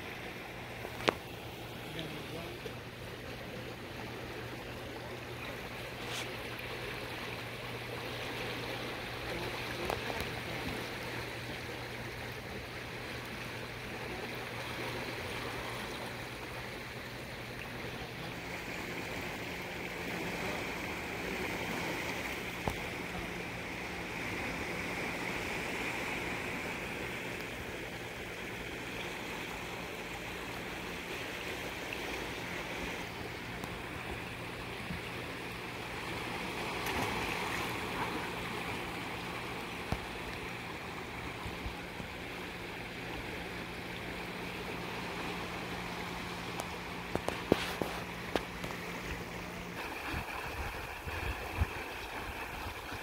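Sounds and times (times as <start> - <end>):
low steady hum: 0.0 - 53.0
rushing water: 0.0 - 53.0.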